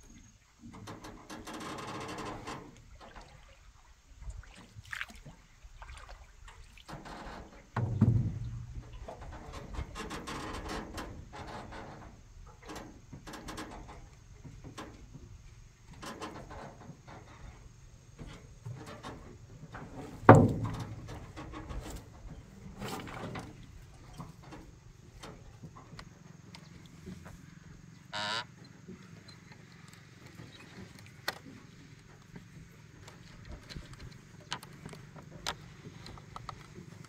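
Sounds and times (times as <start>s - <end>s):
wooden knocks scrapes and creaks: 6.9s - 15.4s, 16.0s - 27.5s
loud thump: 7.8s - 9.0s.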